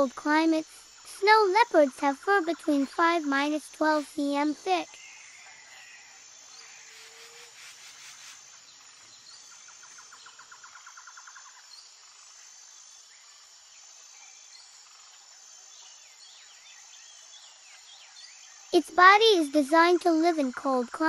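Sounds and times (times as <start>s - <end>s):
insects chirping: 0.0s - 21.0s
rapid insect trill: 0.0s - 21.0s.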